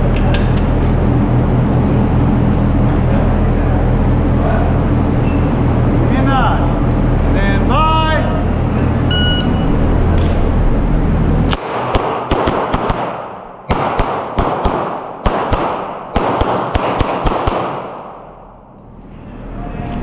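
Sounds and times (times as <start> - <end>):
pistol shots echoing indoors: 11.5 - 18.6.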